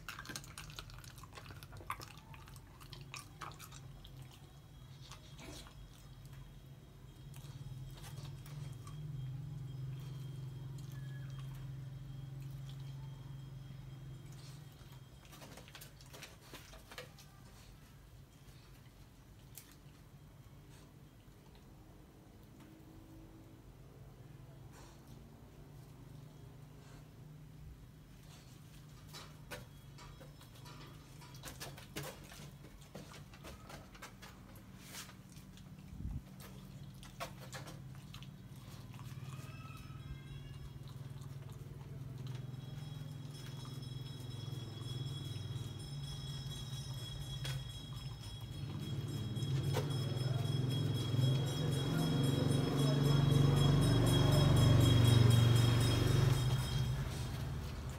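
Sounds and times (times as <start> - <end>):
puppy crunching bones: 0.0 - 6.5, 29.1 - 39.8.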